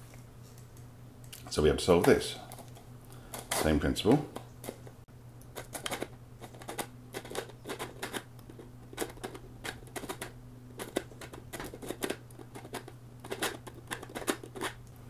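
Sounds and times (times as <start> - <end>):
steady low hum: 0.0 - 15.0
plastic puzzle pegs clicking: 5.6 - 14.8.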